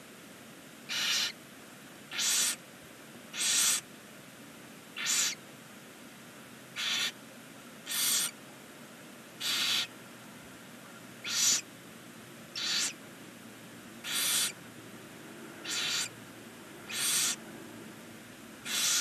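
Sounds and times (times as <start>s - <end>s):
barn owl rasping hiss: 0.9s - 1.4s, 2.1s - 2.6s, 3.3s - 3.9s, 5.0s - 5.4s, 6.7s - 7.2s, 7.8s - 8.4s, 9.4s - 10.0s, 11.2s - 11.7s, 12.5s - 13.0s, 14.0s - 14.6s, 15.6s - 16.2s, 16.8s - 17.4s, 18.6s - 19.0s.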